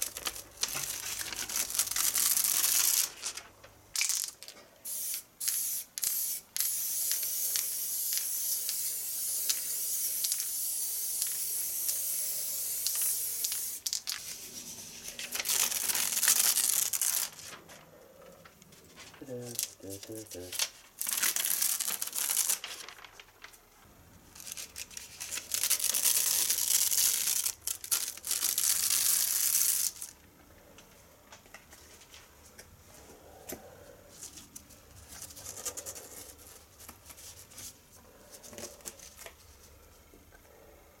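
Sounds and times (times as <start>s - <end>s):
stencil sheet ripping off board: 15.2s - 17.5s, 20.5s - 22.9s, 24.4s - 30.1s.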